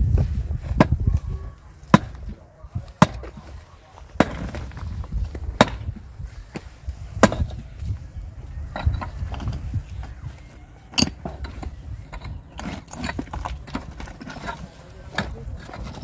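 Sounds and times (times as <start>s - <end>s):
digging tool striking stones: 1.9s - 3.5s, 4.1s - 7.6s, 10.9s - 16.0s.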